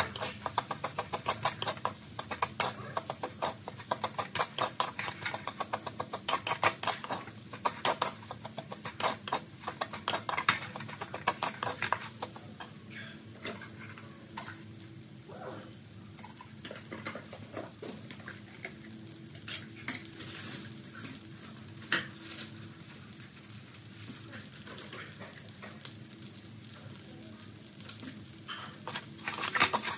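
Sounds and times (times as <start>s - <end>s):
spatula scraping a metal wok: 0.0s - 12.7s, 28.5s - 29.9s.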